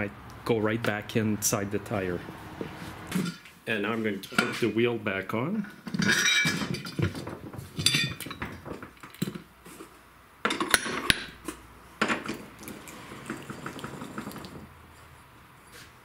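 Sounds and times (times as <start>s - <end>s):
metal clanks and clinks: 5.9s - 7.1s, 7.8s - 8.5s.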